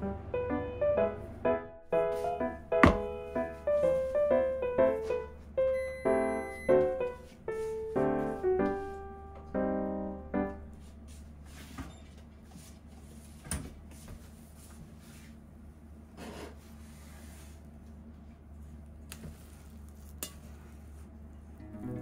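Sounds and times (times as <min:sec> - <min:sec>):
piano background music: 0:00.0 - 0:11.0, 0:21.6 - 0:22.0.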